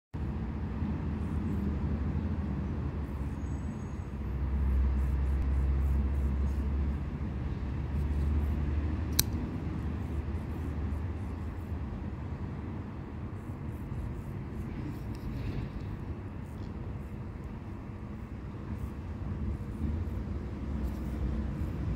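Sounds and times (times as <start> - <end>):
low outdoor rumble: 0.2 - 21.9
sharp click: 9.1 - 9.5.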